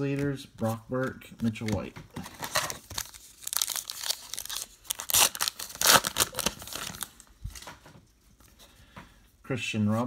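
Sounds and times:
card pack wrapper tearing: 0:02.4 - 0:07.2.

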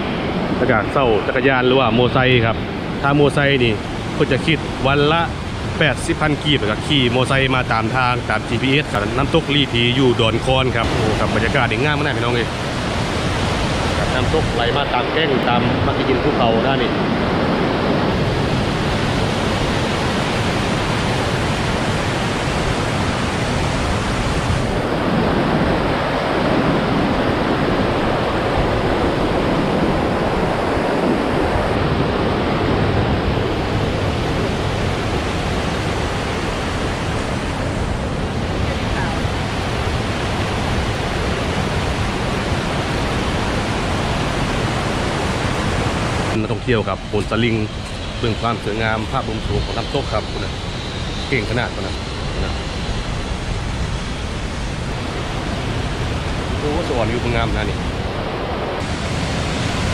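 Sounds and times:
white water rushing over rocks: 0:00.7 - 0:51.8, 0:53.2 - 0:59.9.

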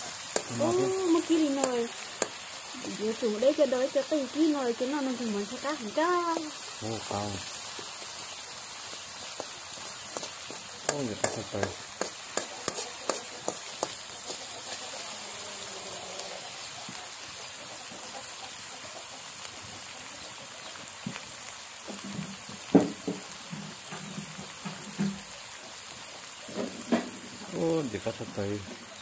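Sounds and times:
metal spoon scraping wok: 0:00.0 - 0:02.8, 0:09.1 - 0:15.1
aromatics sizzling in hot oil: 0:00.0 - 0:29.0.

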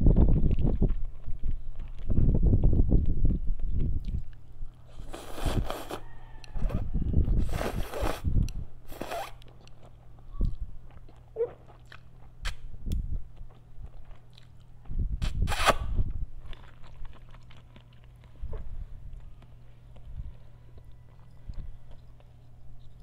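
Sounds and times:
soft chewing: 0:00.2 - 0:07.6, 0:08.3 - 0:15.2, 0:16.1 - 0:23.0
noodles being slurped: 0:04.9 - 0:06.0, 0:07.4 - 0:08.3.

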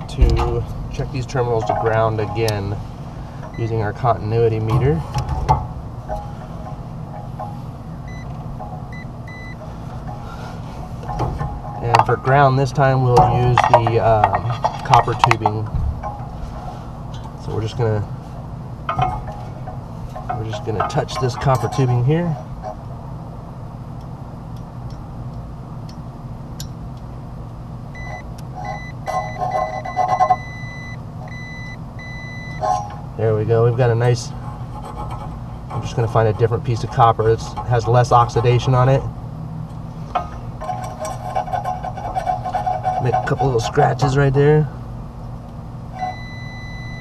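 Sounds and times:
steady low hum: 0:00.0 - 0:47.0
multimeter continuity beep: 0:08.1 - 0:08.3, 0:08.9 - 0:09.6, 0:28.0 - 0:32.6, 0:46.0 - 0:47.0
probe scraping on copper: 0:28.1 - 0:30.7, 0:33.7 - 0:39.0, 0:40.1 - 0:44.2.

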